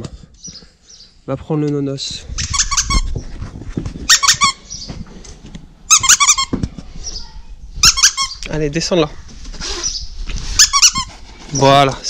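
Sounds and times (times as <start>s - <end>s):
dog toy squeaking: 2.4s - 3.2s, 4.1s - 4.7s, 5.9s - 6.6s, 7.8s - 8.4s, 10.6s - 11.1s.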